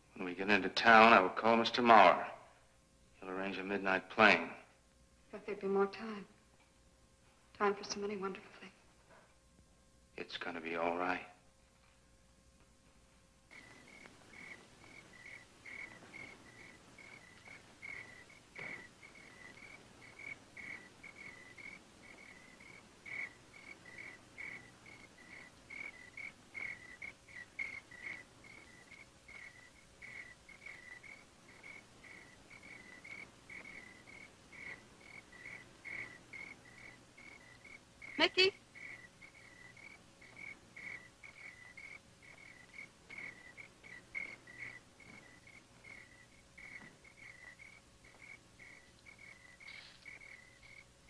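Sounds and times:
crickets chirping: 10.1s - 11.5s, 13.5s - 51.0s.

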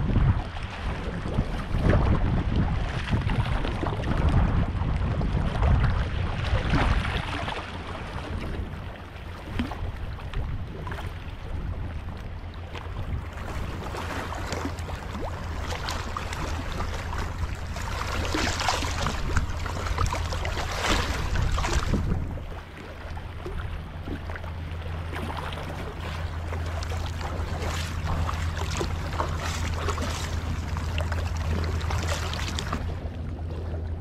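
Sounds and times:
wind on microphone: 0.0s - 34.0s
water lapping on rocks: 9.4s - 34.0s.

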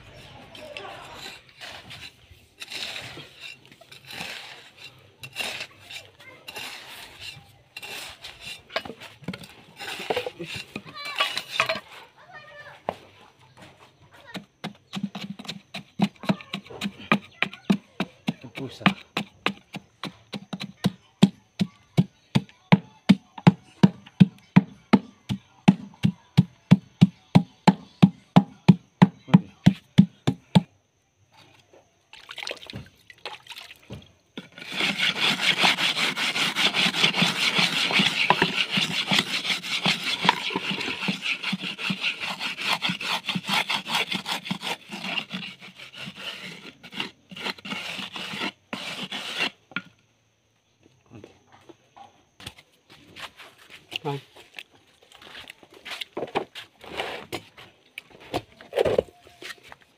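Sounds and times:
board rasping over wet concrete: 0.0s - 12.6s, 14.2s - 21.0s, 33.9s - 49.9s, 55.8s - 57.6s
concrete tamping thuds: 13.6s - 30.8s.

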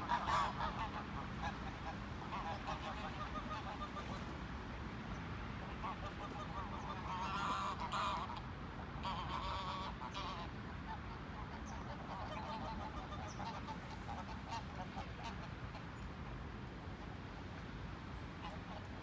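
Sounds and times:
geese honking and cackling: 0.0s - 4.4s, 5.6s - 16.0s, 18.4s - 19.0s.

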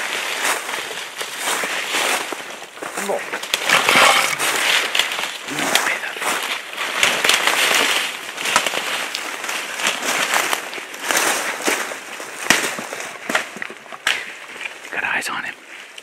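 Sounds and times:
twigs snapping underfoot: 2.8s - 14.9s.

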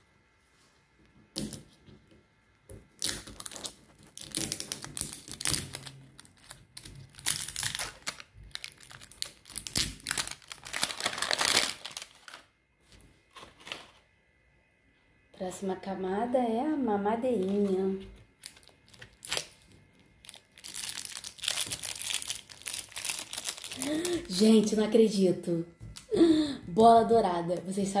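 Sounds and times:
plastic wrapper crinkling and tearing: 2.8s - 12.6s, 13.2s - 14.0s, 17.4s - 24.7s.

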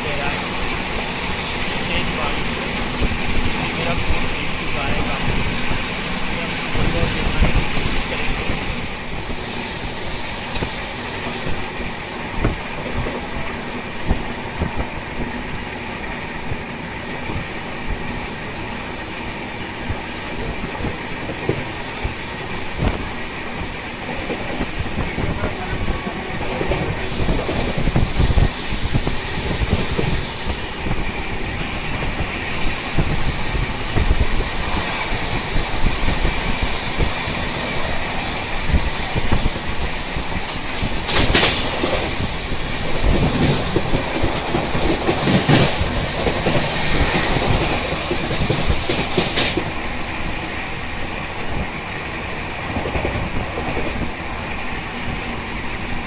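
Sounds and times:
rail joint clickety-clack: 0.0s - 56.0s
train wheels rumbling on rails: 0.0s - 56.0s.

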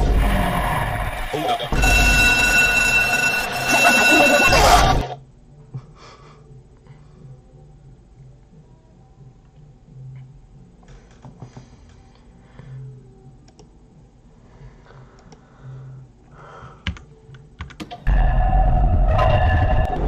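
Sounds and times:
harsh distorted noise blast: 0.0s - 5.2s, 18.1s - 20.0s
computer mouse clicks: 13.4s - 13.7s.

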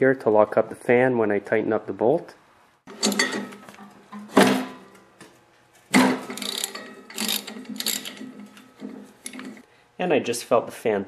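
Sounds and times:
hand ratchet clicking: 6.3s - 8.3s.

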